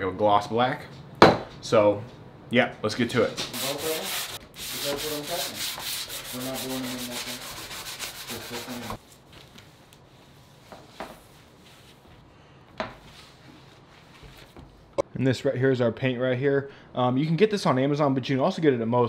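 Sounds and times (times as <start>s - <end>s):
hand sanding scrubbing strokes: 3.5s - 12.2s.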